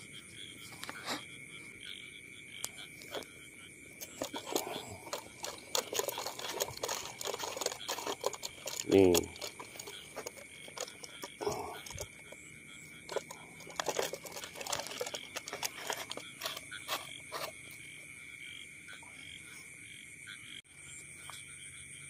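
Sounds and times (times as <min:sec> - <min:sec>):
frogs calling: 0:00.0 - 0:22.0
close clicks and rustles: 0:04.0 - 0:12.4, 0:13.1 - 0:17.6.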